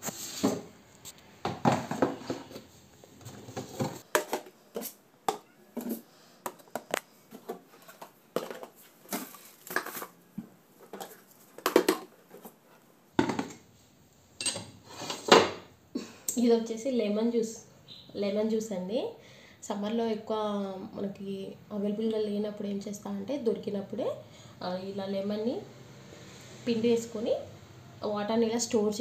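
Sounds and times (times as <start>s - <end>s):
plastic containers and jars clattering: 1.4s - 13.7s.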